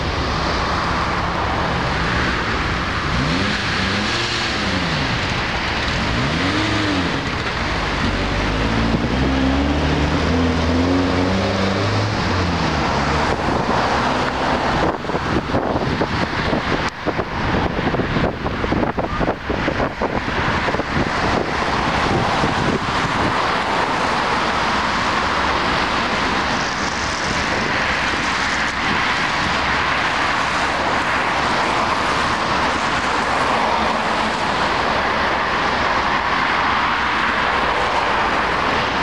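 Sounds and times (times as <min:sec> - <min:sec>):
wind buffeting microphone: 0:00.0 - 0:33.5.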